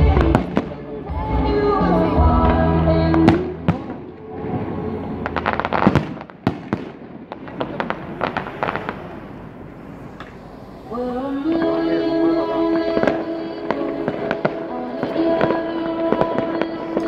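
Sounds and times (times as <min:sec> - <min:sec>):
fireworks bursting: 0:00.0 - 0:17.0
fireworks crackle: 0:03.2 - 0:12.1.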